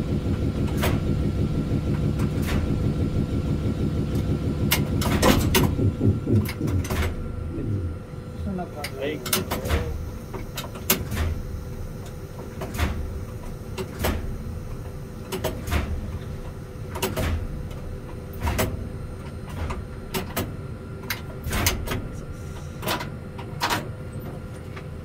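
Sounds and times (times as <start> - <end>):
locomotive equipment hum: 0.0 - 25.0
locomotive controls clicking: 4.1 - 7.8.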